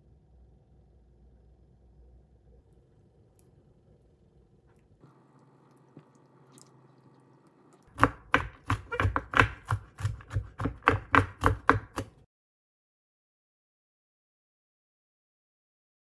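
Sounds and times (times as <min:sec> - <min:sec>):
knife chopping nuts on wooden board: 0:07.9 - 0:12.3.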